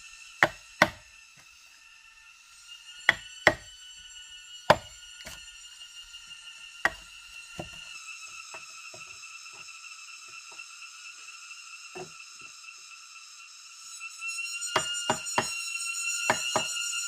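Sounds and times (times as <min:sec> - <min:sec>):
wood chopping blows: 0:00.4 - 0:01.0, 0:03.1 - 0:03.7, 0:04.7 - 0:05.4, 0:07.6 - 0:07.8.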